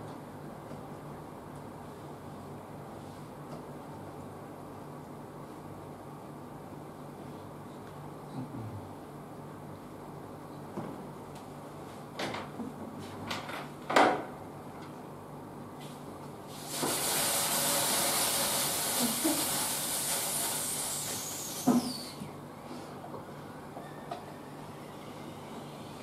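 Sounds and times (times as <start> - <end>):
high hiss like falling rain: 16.5 - 22.0.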